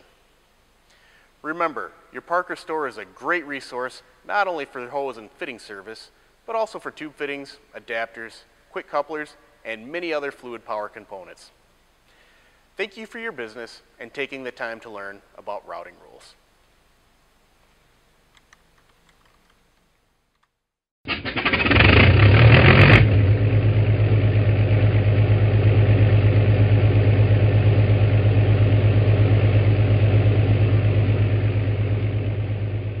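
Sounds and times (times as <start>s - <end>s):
engine starting and idling: 21.1s - 33.0s.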